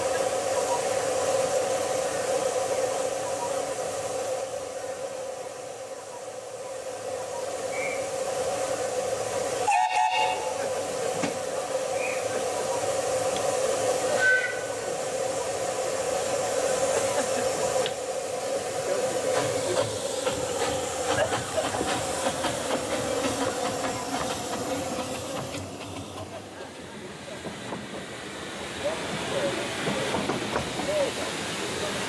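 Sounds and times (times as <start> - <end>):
steam locomotive hissing: 0.0 - 32.0
train clicks and knocks: 9.8 - 12.4, 13.2 - 13.7, 16.9 - 18.1, 18.8 - 32.0.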